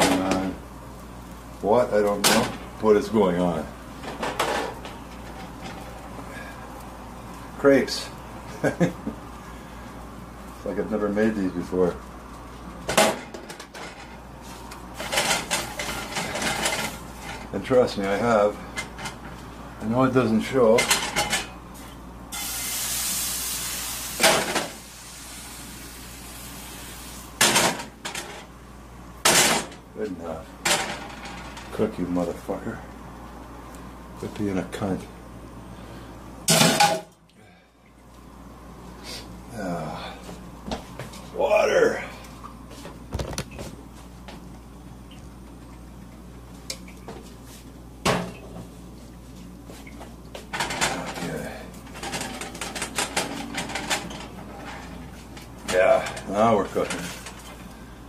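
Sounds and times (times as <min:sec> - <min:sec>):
low steady hum: 0:00.0 - 0:58.0
batter sizzling in skillet: 0:21.7 - 0:28.0
skillet clatter: 0:50.5 - 0:57.6.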